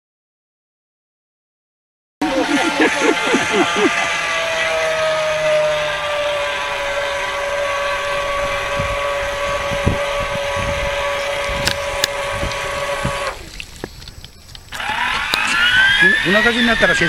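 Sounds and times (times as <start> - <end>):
model boat motor whining: 2.2 - 17.0
wind buffeting microphone: 6.8 - 17.0.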